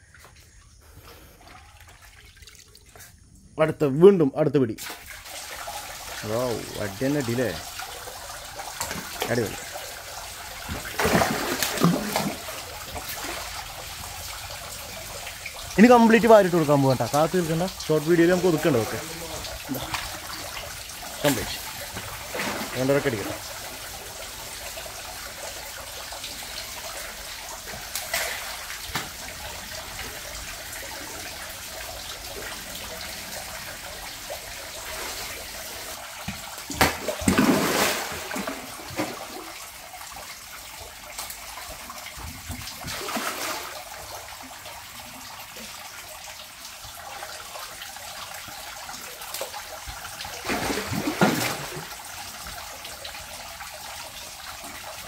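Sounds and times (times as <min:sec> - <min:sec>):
running water: 0:00.0 - 0:55.0
fish splashing at surface: 0:10.6 - 0:13.6, 0:21.2 - 0:23.4, 0:36.7 - 0:39.5, 0:50.4 - 0:51.9.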